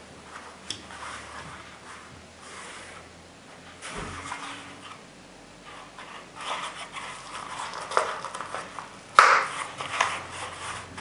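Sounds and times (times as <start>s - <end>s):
nylon fabric rustling: 0.0s - 5.0s.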